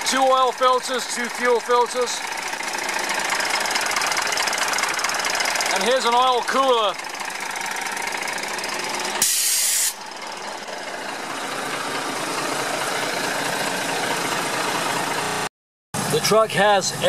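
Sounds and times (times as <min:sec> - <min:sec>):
diesel truck engine idling: 0:00.0 - 0:17.0
air brake hiss: 0:09.2 - 0:10.0.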